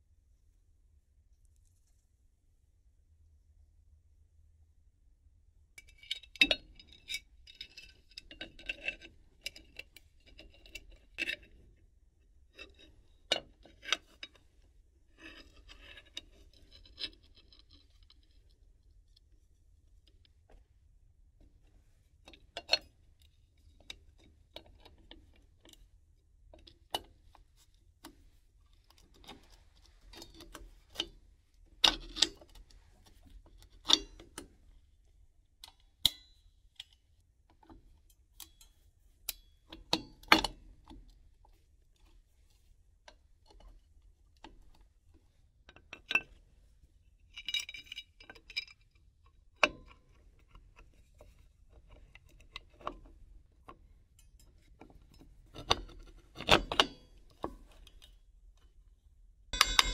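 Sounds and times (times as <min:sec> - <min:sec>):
metal tools clinking: 0:59.6 - 0:59.9.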